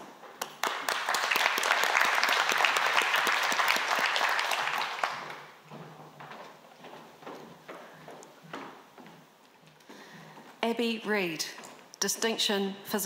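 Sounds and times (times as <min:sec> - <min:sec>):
audience applauding: 0:00.0 - 0:05.6.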